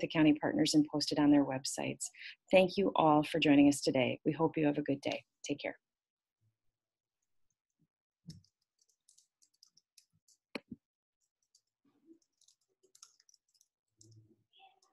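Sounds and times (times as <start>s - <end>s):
computer mouse clicking: 8.3s - 10.8s, 11.4s - 14.9s.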